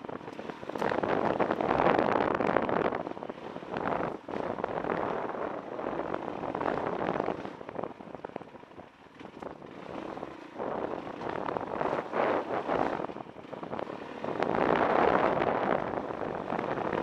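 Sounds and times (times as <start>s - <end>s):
dirt bike engine: 0.0s - 17.0s
wind rushing over microphone: 0.0s - 17.0s
stones clicking under tyres: 0.2s - 2.8s.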